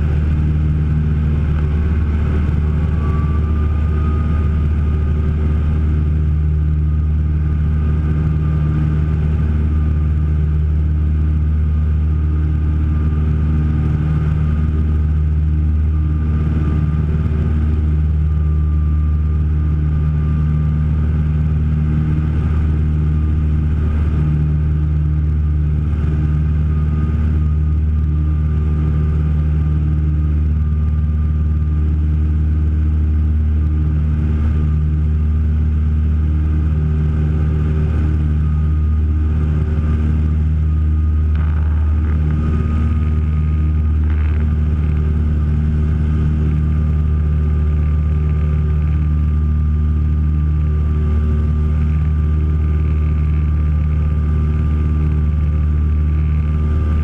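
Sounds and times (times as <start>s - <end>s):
aircraft engines droning: 0.0s - 57.0s.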